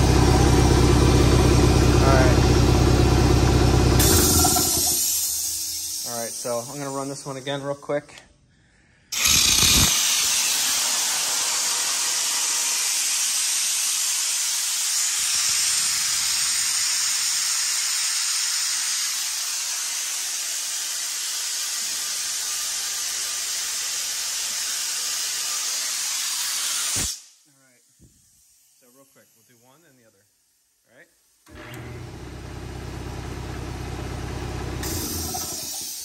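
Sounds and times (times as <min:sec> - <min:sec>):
compressed air hissing from valve: 0:04.0 - 0:06.9, 0:09.1 - 0:27.4, 0:28.0 - 0:29.8, 0:34.8 - 0:36.0.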